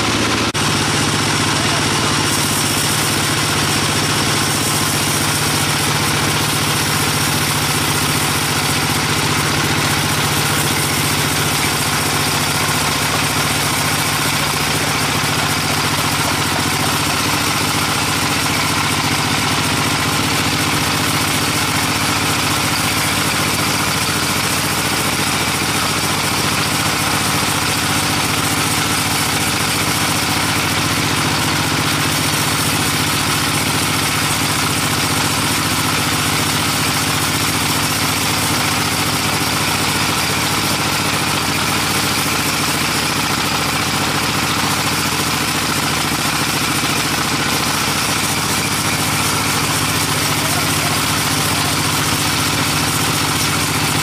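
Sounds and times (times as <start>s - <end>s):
machine hum: 0.0s - 42.3s
saw blade cutting log: 0.0s - 54.0s.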